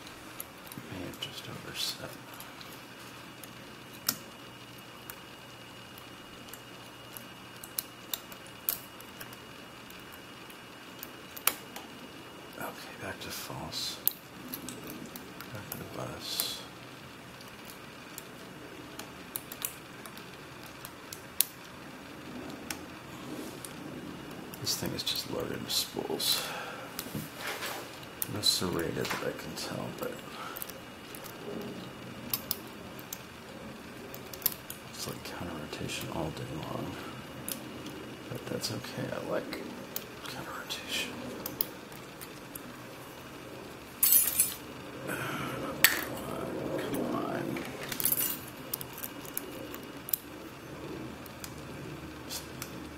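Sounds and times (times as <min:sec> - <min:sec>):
lock picks clinking on padlock: 0:44.0 - 0:44.6, 0:47.8 - 0:49.5.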